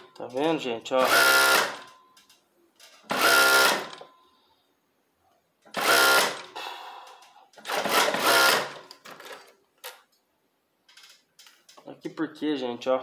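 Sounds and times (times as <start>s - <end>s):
sewing machine running in bursts: 1.0s - 1.8s, 3.1s - 4.0s, 5.8s - 6.5s, 7.6s - 8.8s.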